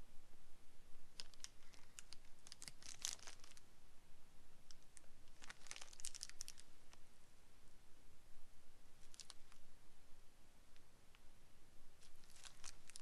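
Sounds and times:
plastic sleeves crinkling: 1.1 - 3.6, 4.7 - 7.0, 9.0 - 9.6, 12.0 - 13.0.

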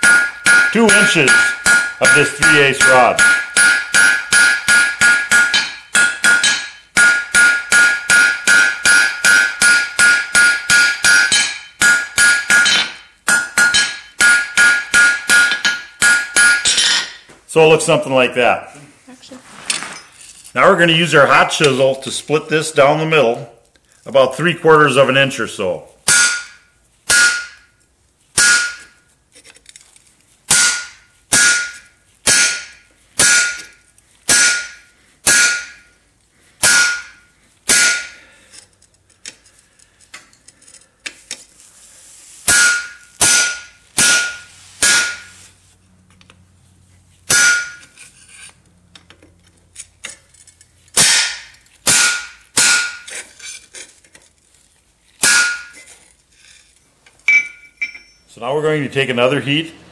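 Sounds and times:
hammer striking metal chisel: 0.0 - 17.2, 26.1 - 27.7, 28.4 - 29.0, 30.5 - 36.0, 36.6 - 38.2, 42.5 - 45.4, 47.3 - 48.5, 51.0 - 53.2, 55.2 - 56.0, 57.3 - 58.3.

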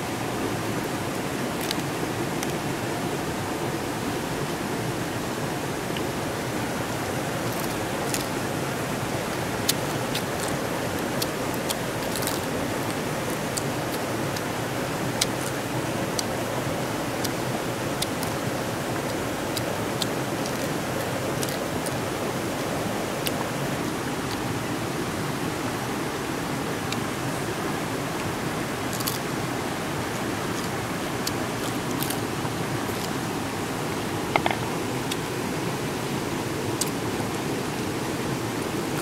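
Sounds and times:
river rushing: 0.0 - 39.0
crab shell clicking: 1.6 - 2.6, 9.6 - 14.6, 15.2 - 15.6, 17.2 - 22.0, 28.9 - 29.3, 30.6 - 33.2, 34.3 - 35.2.

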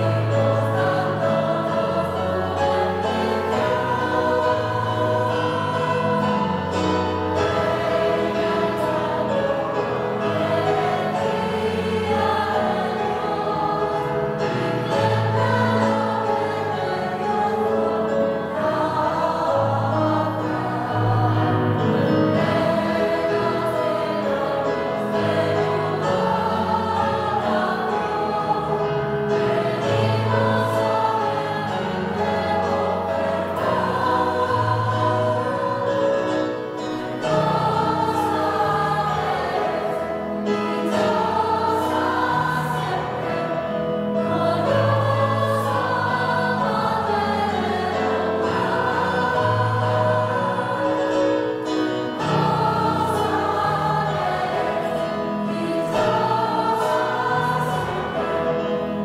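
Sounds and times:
keyboard accompaniment: 0.0 - 59.0
mixed choir singing: 0.0 - 59.0.

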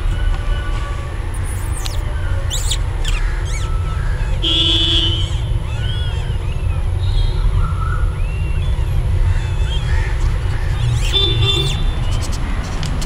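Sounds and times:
steady low rumble: 0.0 - 13.0
kittens mewing: 1.3 - 7.0, 8.8 - 12.0.

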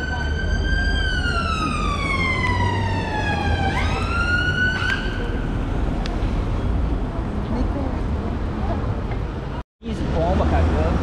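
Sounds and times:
emergency vehicle siren wailing: 0.0 - 5.8
low rumble of street traffic: 0.0 - 11.0.

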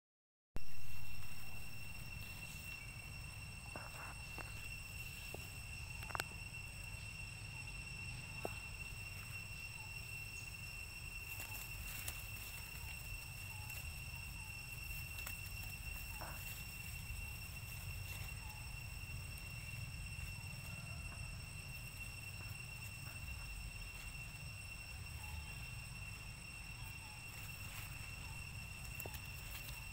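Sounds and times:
high-pitched insect drone: 0.6 - 29.9.

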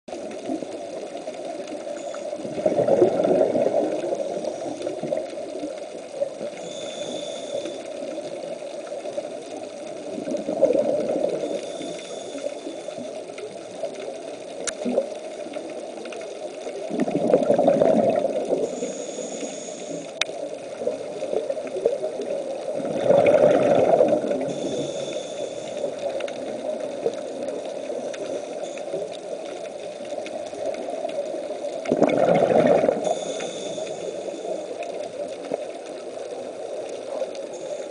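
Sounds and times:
underwater bubbles rumbling: 0.1 - 37.9
regulator hiss: 3.6 - 10.1, 11.2 - 15.5, 18.4 - 22.7, 24.2 - 31.8, 32.9 - 37.9.

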